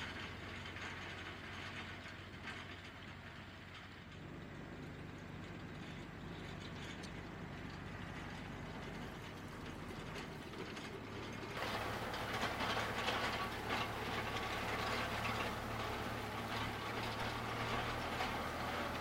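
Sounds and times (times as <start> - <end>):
tractor diesel engine running: 0.0 - 19.0
harrow discs rattling: 7.6 - 19.0.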